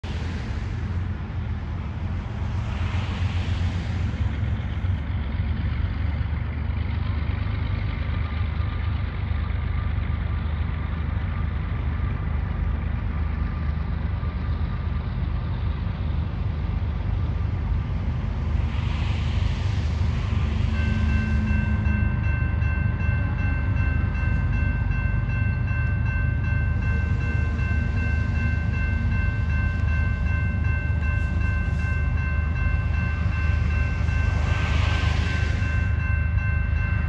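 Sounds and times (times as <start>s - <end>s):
broad rushing noise: 0.0s - 6.7s, 14.8s - 24.4s, 26.3s - 37.0s
low engine rumble: 0.0s - 37.0s
crossing bell ringing: 20.6s - 37.0s.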